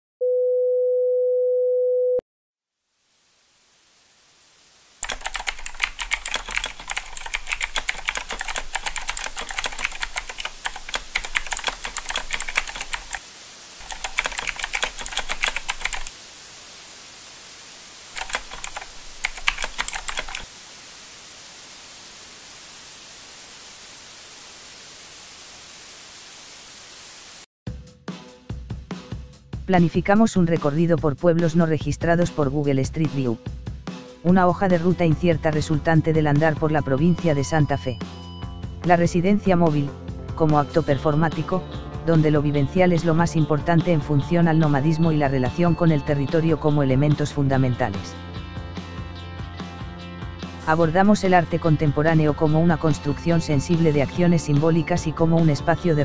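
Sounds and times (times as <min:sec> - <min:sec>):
steady hiss: 0:02.8 - 0:27.5
typing on a keyboard: 0:05.0 - 0:13.2, 0:13.8 - 0:16.1, 0:18.2 - 0:20.5.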